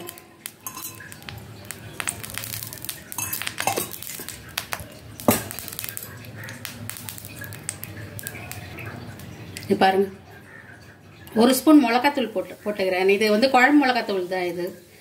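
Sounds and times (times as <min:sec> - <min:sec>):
pots and utensils clinking: 0:00.0 - 0:09.0.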